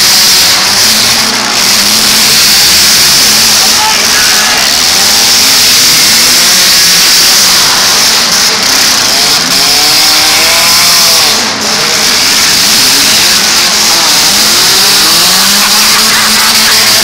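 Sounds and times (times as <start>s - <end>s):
car engines revving: 0.0s - 17.0s.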